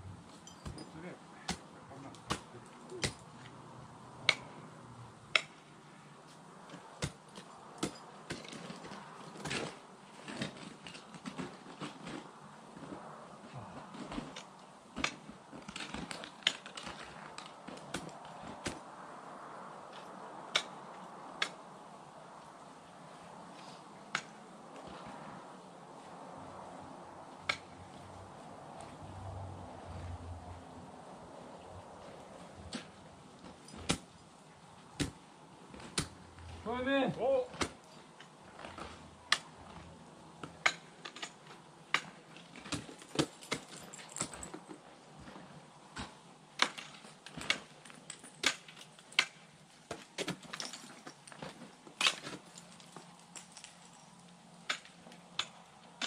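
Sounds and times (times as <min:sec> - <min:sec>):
ice axe striking ice: 0:02.3 - 0:03.2, 0:05.3 - 0:05.7, 0:07.0 - 0:08.8, 0:40.5 - 0:44.4, 0:46.0 - 0:53.8, 0:54.7 - 0:55.6
ice picks striking ice: 0:46.0 - 0:52.9, 0:54.7 - 0:55.6.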